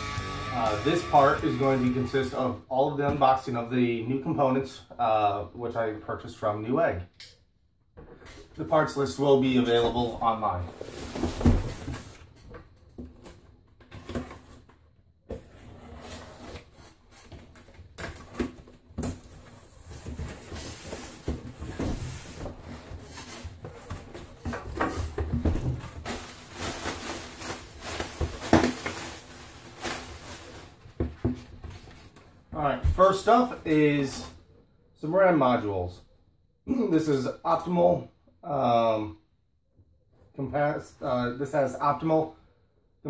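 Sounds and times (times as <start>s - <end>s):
cardboard scraping and rubbing: 15.4s - 17.7s.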